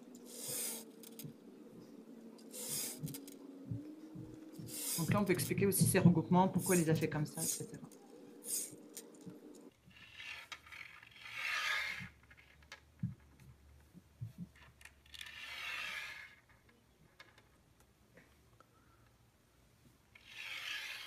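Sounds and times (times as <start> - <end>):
candies scraping on tabletop: 0.2 - 1.2, 4.6 - 5.8, 9.9 - 12.7, 15.1 - 16.6, 20.2 - 21.0.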